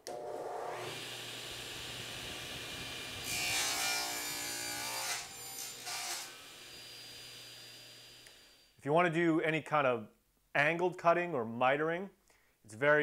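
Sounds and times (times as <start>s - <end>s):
table saw running: 0.0s - 8.6s
saw cutting a board: 0.1s - 8.6s.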